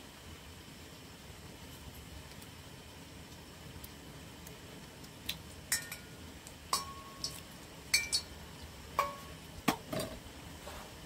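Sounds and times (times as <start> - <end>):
kitchenware clinking: 5.7 - 6.1, 6.8 - 8.3, 9.0 - 9.4.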